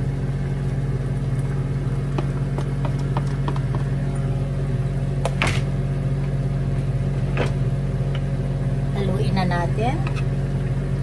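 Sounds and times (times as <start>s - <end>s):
low mechanical hum: 0.0s - 11.0s
food knocking on plate and pan: 2.1s - 3.9s.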